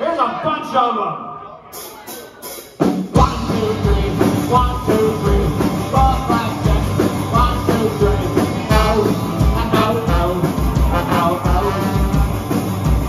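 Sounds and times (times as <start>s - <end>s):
live punk rock band: 1.7s - 13.0s.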